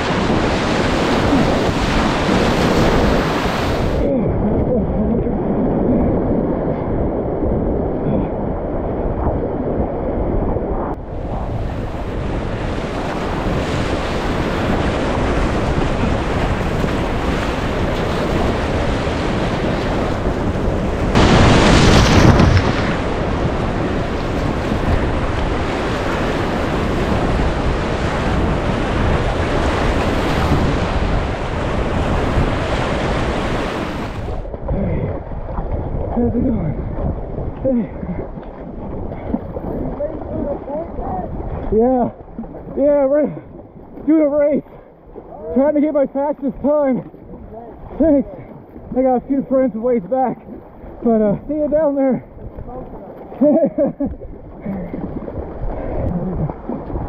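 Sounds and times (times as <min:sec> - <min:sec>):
whitewater rushing: 0:00.0 - 0:04.4, 0:12.4 - 0:36.2
water splashing over boat: 0:00.0 - 0:05.2, 0:11.1 - 0:57.0.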